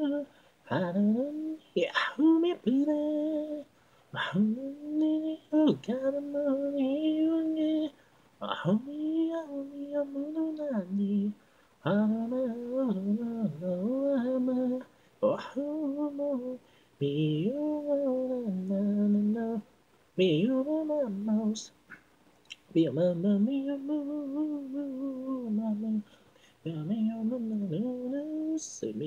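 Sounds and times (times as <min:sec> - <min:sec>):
solo singing voice: 0:00.0 - 0:29.0
singer breathing: 0:00.3 - 0:00.6, 0:03.7 - 0:04.2, 0:16.6 - 0:17.0, 0:26.0 - 0:26.6.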